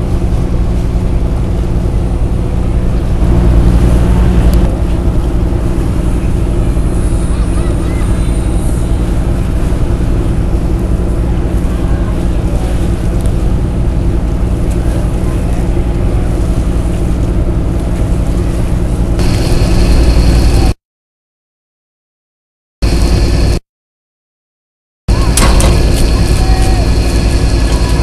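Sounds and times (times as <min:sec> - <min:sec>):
ferry engine humming: 0:00.0 - 0:20.8, 0:22.8 - 0:23.6, 0:25.1 - 0:28.0
high engine whine: 0:00.0 - 0:20.8, 0:22.8 - 0:23.6, 0:25.1 - 0:28.0.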